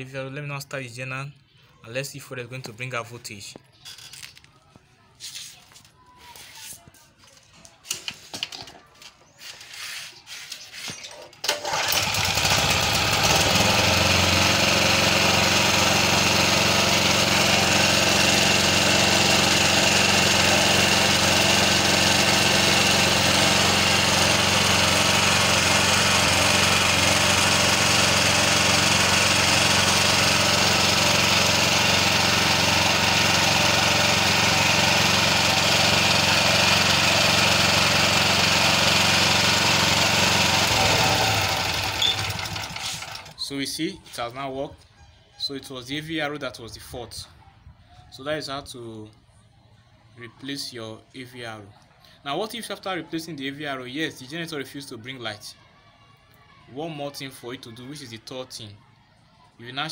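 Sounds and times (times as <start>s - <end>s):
generator engine running: 11.4s - 43.4s.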